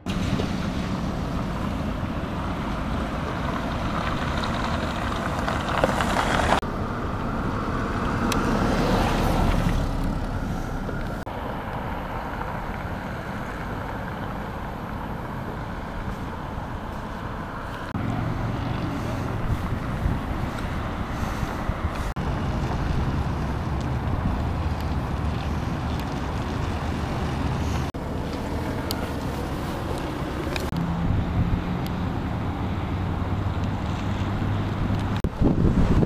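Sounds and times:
low outdoor rumble: 0:00.0 - 0:36.0
wind buffeting microphone: 0:17.9 - 0:36.0.

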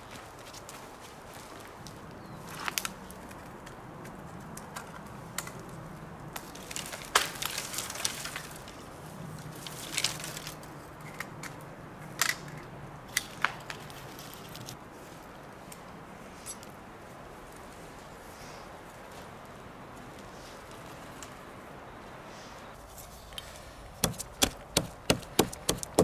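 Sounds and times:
twigs and branches snapping: 0:01.8 - 0:14.8
saplings dragged through dry brush: 0:06.4 - 0:10.6.

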